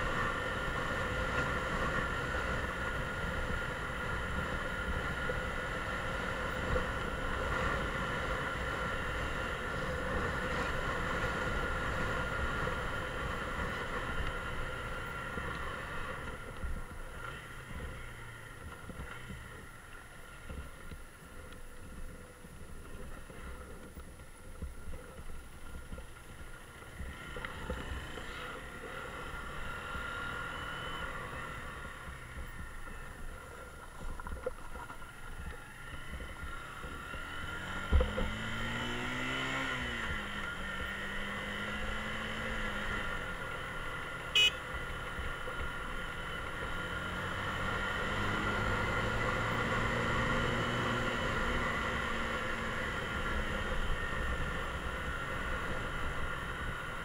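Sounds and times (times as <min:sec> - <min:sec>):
motorcycle engine: 0:00.0 - 0:57.0
wind and road noise: 0:00.0 - 0:57.0
short high beep: 0:44.4 - 0:44.6.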